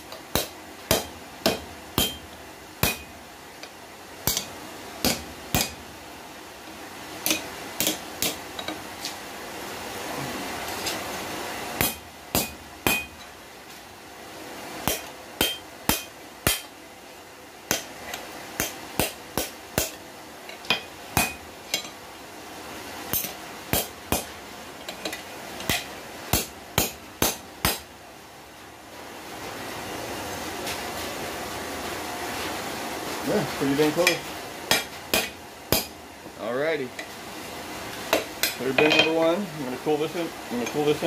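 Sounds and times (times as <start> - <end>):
hammer striking metal on anvil: 0.3 - 3.1, 4.2 - 5.8, 7.2 - 8.4, 11.8 - 13.3, 14.8 - 16.7, 18.6 - 20.0, 20.7 - 21.9, 23.1 - 24.3, 25.7 - 27.8, 34.0 - 36.0, 38.1 - 39.2.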